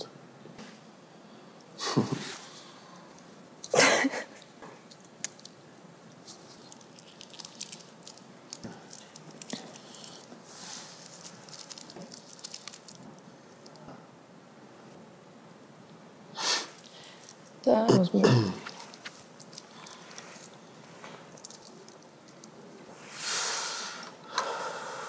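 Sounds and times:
object crinkling and clicking: 4.4s - 13.9s, 16.7s - 17.6s, 18.6s - 22.9s.

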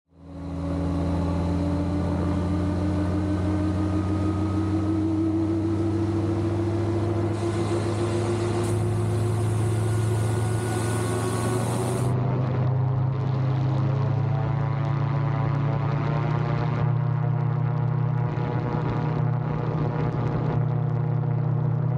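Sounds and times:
gyroplane engine and propeller: 0.2s - 21.9s
high hiss: 7.4s - 12.1s.

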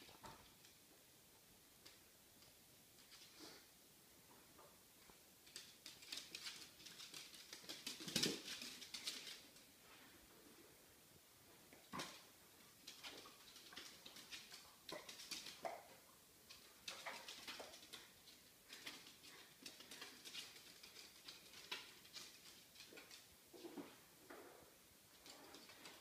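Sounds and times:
dog nails clicking on hardwood floor: 5.0s - 9.7s, 11.7s - 23.3s, 25.1s - 26.0s.

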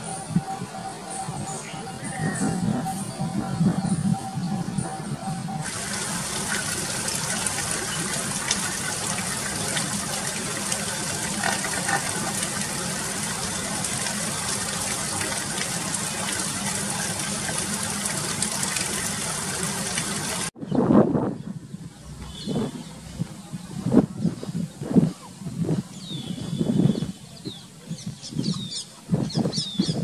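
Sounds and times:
rushing hiss of running water: 5.6s - 20.5s.

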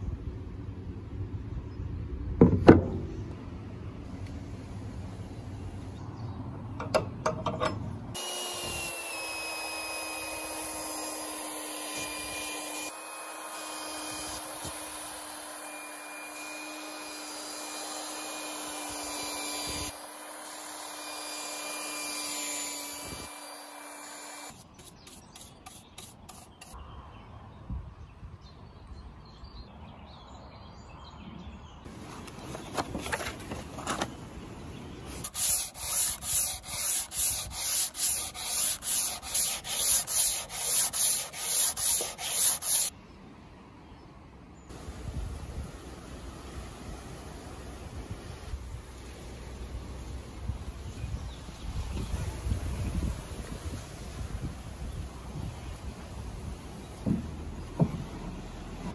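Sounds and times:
drum sander stripping paint: 8.2s - 26.8s, 35.1s - 42.9s.

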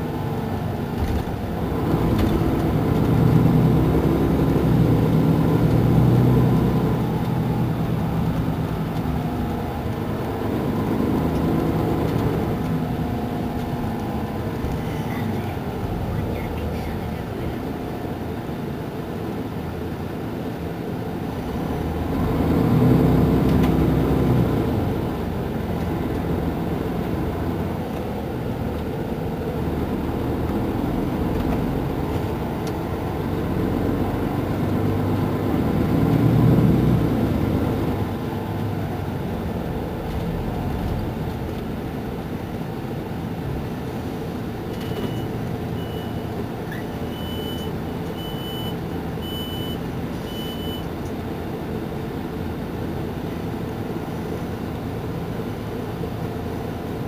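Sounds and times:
diesel engine idling: 0.0s - 22.2s
short high beeps: 44.8s - 46.3s, 47.0s - 50.9s.

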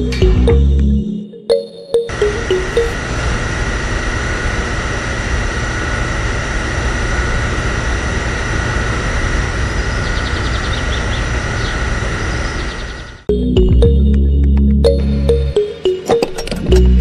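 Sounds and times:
small water pump motor humming: 2.1s - 14.0s.

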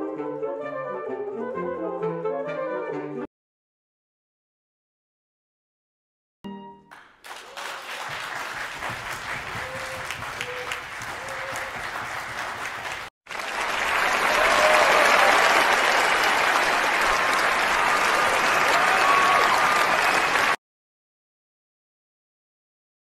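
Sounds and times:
audience applauding: 6.9s - 20.6s
voices in applause: 6.9s - 20.6s.

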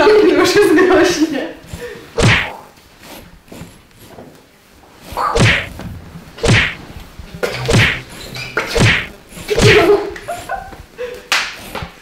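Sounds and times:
whoosh swishes falling in pitch: 5.2s - 5.8s, 6.4s - 6.8s.

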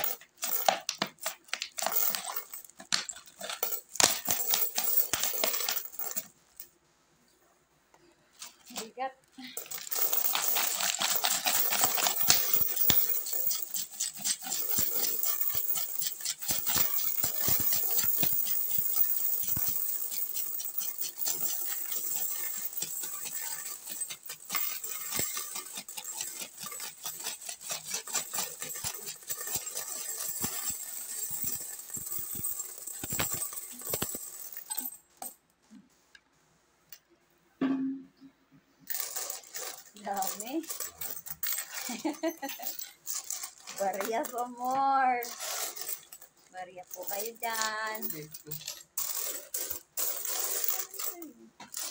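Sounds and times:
coins clinking and jingling: 0.0s - 6.3s, 9.5s - 35.4s, 38.9s - 51.9s.

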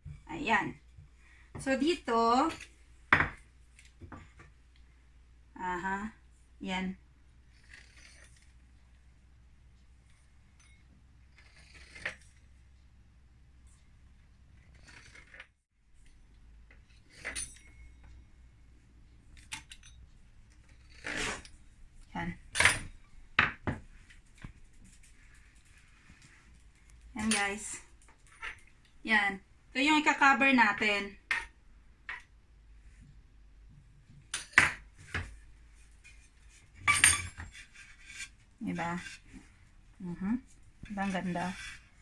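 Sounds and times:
pastry tools knocking on countertop: 3.1s - 3.4s
metal utensils clattering: 36.9s - 37.5s.

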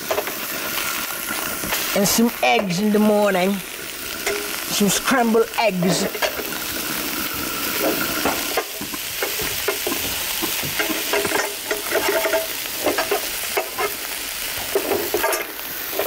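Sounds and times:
eggs sizzling in frying pan: 0.0s - 16.0s
metal spatula scraping pan: 10.8s - 14.0s.

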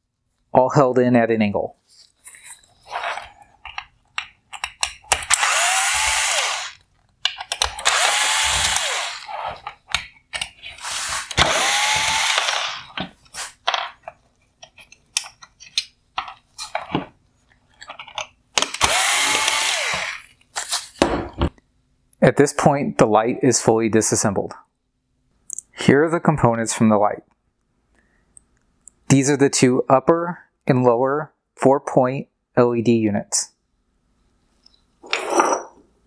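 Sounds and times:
plastic parts clicking and knocking: 3.6s - 5.4s, 7.0s - 8.0s, 9.5s - 10.7s, 11.3s - 20.2s
electric screwdriver whirring: 5.3s - 6.8s, 7.7s - 9.4s, 10.8s - 12.9s, 18.7s - 20.3s.

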